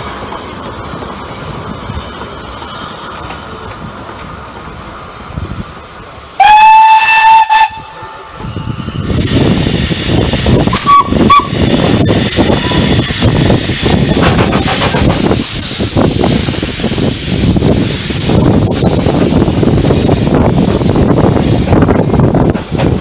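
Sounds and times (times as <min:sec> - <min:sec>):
loud steam hiss: 0:00.0 - 0:23.0
steam locomotive whistle: 0:06.4 - 0:08.3, 0:09.1 - 0:13.2.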